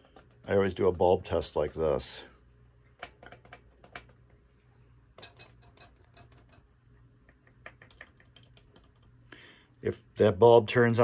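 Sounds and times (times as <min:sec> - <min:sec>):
bulbs clicking in sockets: 0:00.0 - 0:00.6, 0:02.9 - 0:04.4, 0:05.2 - 0:09.2.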